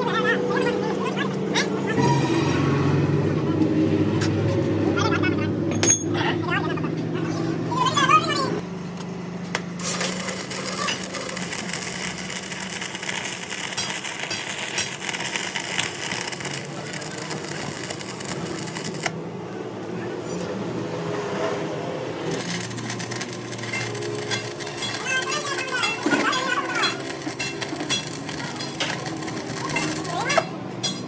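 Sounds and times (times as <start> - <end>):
metalworking crackling hiss: 9.8 - 19.2, 22.3 - 31.0.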